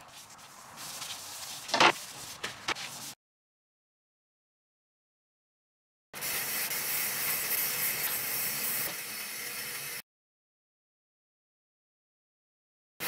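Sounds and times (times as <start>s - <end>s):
aerosol spray can hissing: 6.2s - 10.0s.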